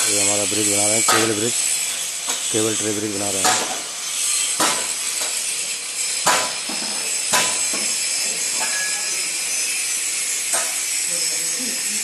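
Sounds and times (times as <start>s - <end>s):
hammer striking steel: 0.0s - 2.5s, 3.3s - 9.3s, 10.1s - 10.9s.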